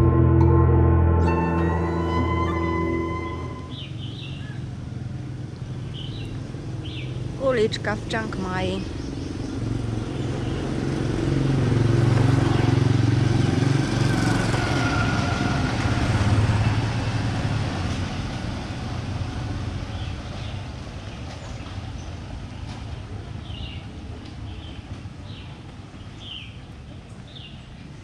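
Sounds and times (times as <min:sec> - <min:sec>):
vehicles driving past: 0:00.0 - 0:28.0.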